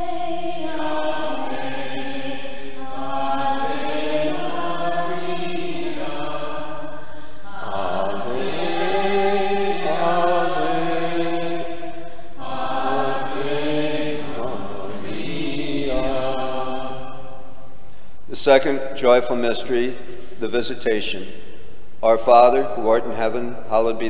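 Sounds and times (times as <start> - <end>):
man singing slow chant: 7.5 - 17.1.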